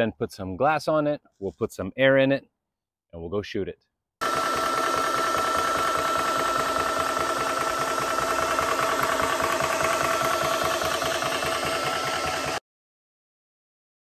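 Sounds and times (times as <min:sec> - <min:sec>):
air compressor whining and pulsing: 0:04.2 - 0:12.6.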